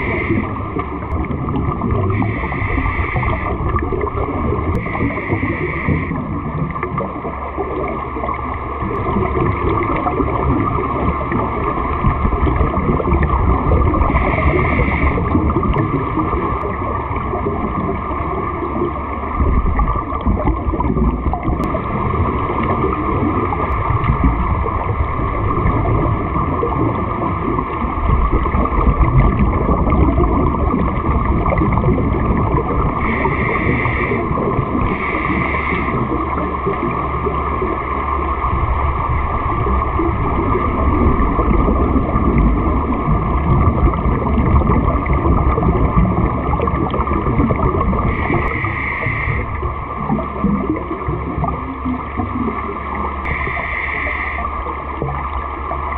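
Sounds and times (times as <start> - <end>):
breath hissing through regulator: 0.0 - 0.6, 2.1 - 3.6, 4.8 - 6.2, 14.0 - 15.4, 33.0 - 36.2, 48.0 - 49.6, 53.3 - 54.6
underwater regulator bubbles: 0.0 - 55.9.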